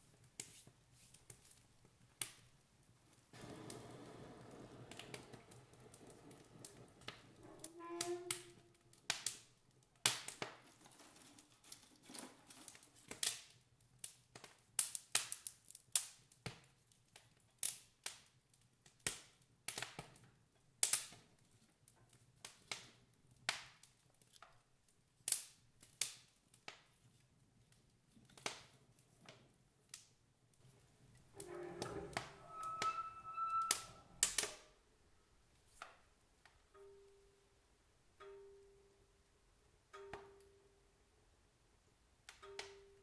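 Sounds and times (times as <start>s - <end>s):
wood fire crackling and popping: 1.1s - 27.0s.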